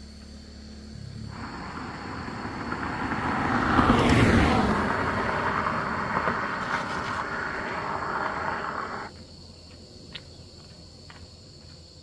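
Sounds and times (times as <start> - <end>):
high insect drone: 0.0 - 12.0
steady rushing noise: 1.3 - 9.1.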